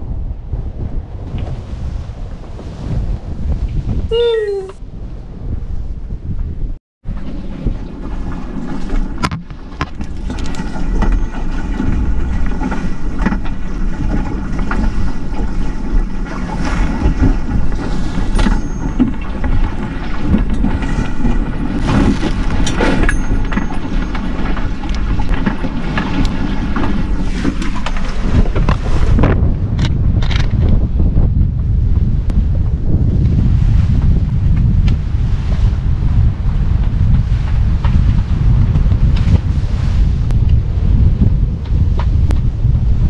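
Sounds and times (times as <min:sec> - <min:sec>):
wind rushing over microphone: 0:00.0 - 0:43.0
water slapping against hulls: 0:07.0 - 0:30.6.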